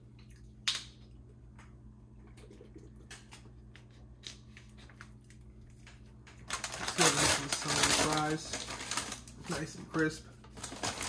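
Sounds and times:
person chewing food: 0.0 - 6.5
steady low hum: 0.0 - 11.0.

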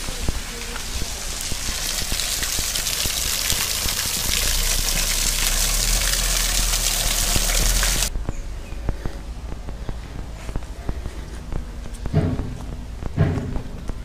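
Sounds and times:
waterfall rushing: 0.9 - 8.1.

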